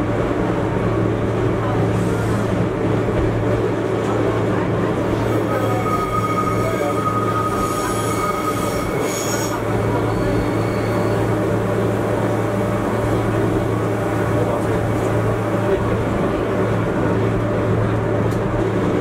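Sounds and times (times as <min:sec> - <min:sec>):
wheel squeal: 0:05.4 - 0:11.3.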